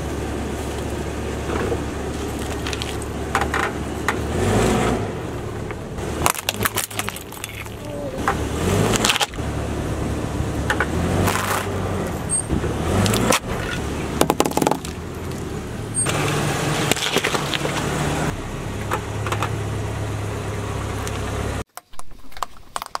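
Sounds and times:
car engine running slowly: 0.0 - 21.7
tyre crushing small objects: 0.7 - 4.2, 5.6 - 9.4, 10.7 - 11.8, 12.9 - 15.5, 16.1 - 18.1, 21.7 - 23.0.

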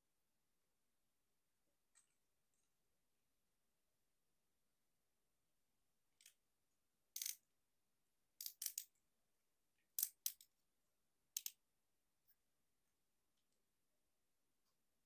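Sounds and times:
plastic toy joints clicking: 7.2 - 7.4, 8.4 - 8.9, 11.4 - 11.6.

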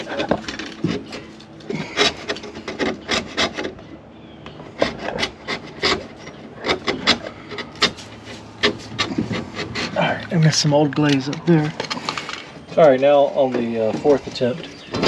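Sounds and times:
metal scraper rasping on wood: 0.0 - 3.9, 4.6 - 10.2.

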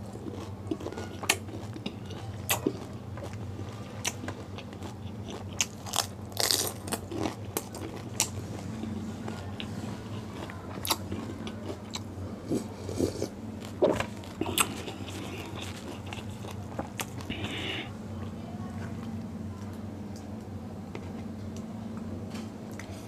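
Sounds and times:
crisp shells crunching when chewed: 0.0 - 17.5.

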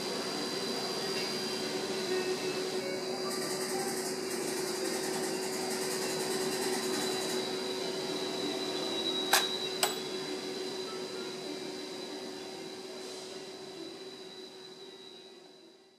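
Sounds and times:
steady hum: 0.0 - 13.0
ringing metallic ding: 9.3 - 10.1.

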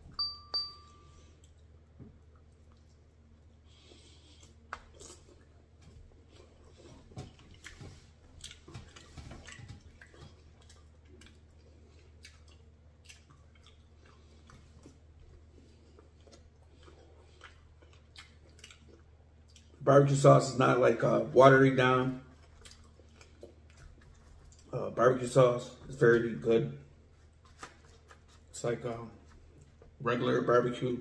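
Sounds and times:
person chewing: 1.2 - 19.8, 22.3 - 24.9, 26.9 - 30.0.

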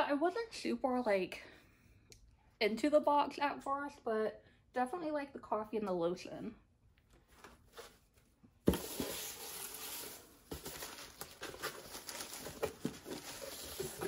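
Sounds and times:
shredded paper rustling: 8.7 - 14.0.

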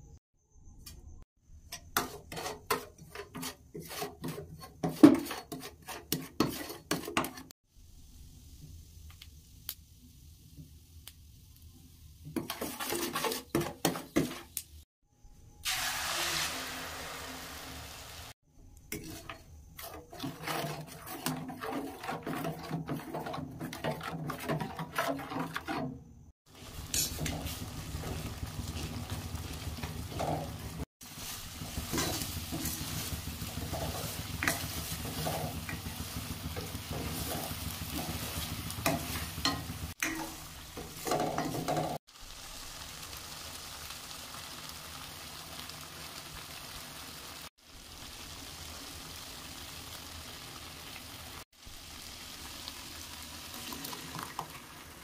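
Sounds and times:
spoon scraping a steel pan: 1.7 - 7.5, 12.4 - 14.5, 18.9 - 26.0, 26.6 - 29.1, 29.8 - 42.0
paste sizzling in hot oil: 1.9 - 14.9, 15.6 - 55.0.

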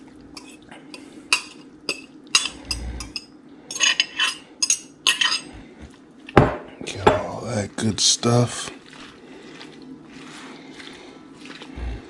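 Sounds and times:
metal spoon clinking on glass: 0.4 - 0.6, 1.3 - 5.5.

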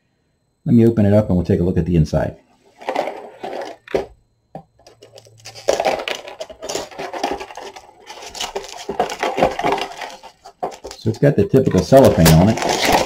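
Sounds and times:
shrink wrap crinkling: 4.9 - 13.0.

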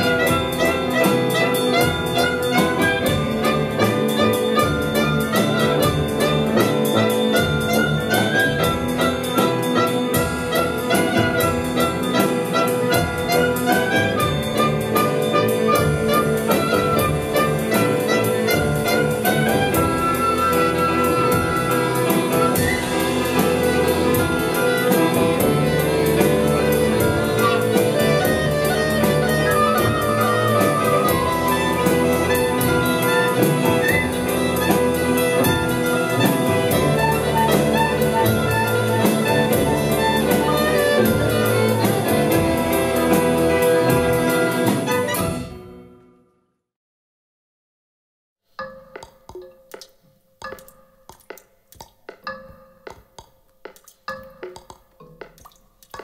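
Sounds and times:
quick percussion beat: 0.0 - 45.7, 48.6 - 56.0
violin: 0.0 - 46.0
low brass: 0.0 - 46.2
flute: 0.0 - 46.3
clarinet: 0.0 - 46.4.

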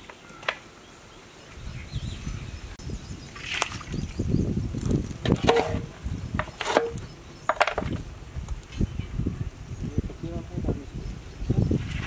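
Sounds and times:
metal ladle clanking in pot: 5.3 - 5.9.

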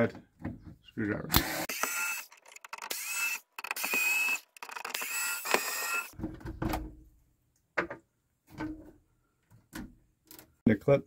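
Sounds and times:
electric screwdriver whirring: 1.4 - 6.2.

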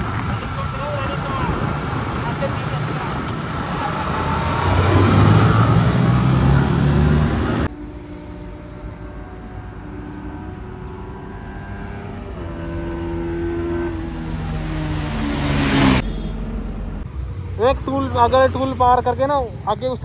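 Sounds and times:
motorcycle engine running: 0.0 - 4.3
loud rush of wind: 0.0 - 7.6.

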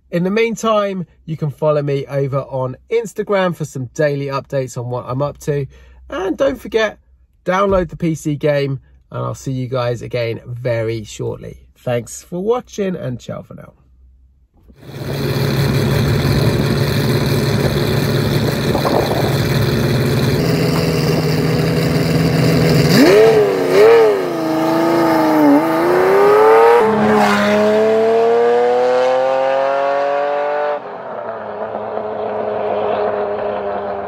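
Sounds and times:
car engine revving: 14.6 - 34.0
road noise: 14.6 - 34.0.

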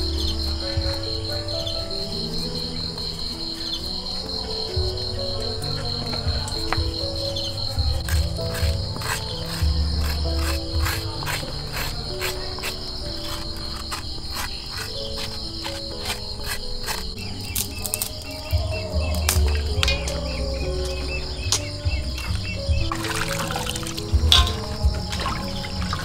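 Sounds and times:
crickets trilling: 0.0 - 26.0
soft background music: 0.0 - 26.0
spoon scraping papaya seeds: 8.0 - 18.6.

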